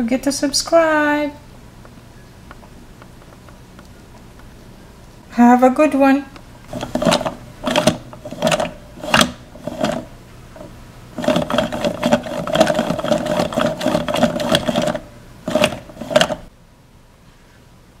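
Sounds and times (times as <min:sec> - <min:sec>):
plastic toy mechanism clattering: 0:06.7 - 0:10.1, 0:11.2 - 0:16.5.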